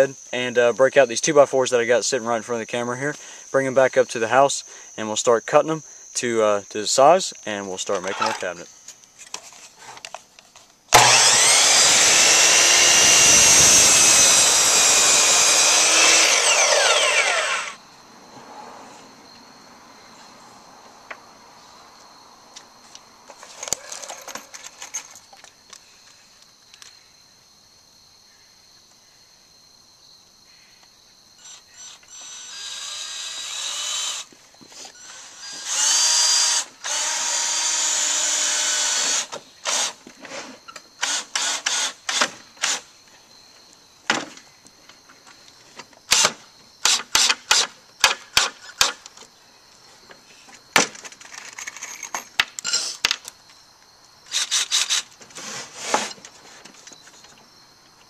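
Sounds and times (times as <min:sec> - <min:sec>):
cordless drill motor whirring: 0:10.9 - 0:17.8, 0:31.4 - 0:34.3, 0:35.0 - 0:39.9.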